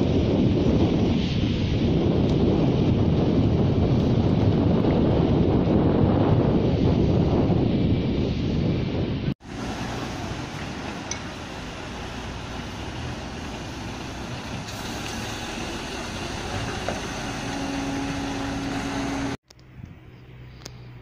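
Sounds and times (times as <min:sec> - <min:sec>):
distant engines: 0:09.4 - 0:21.0.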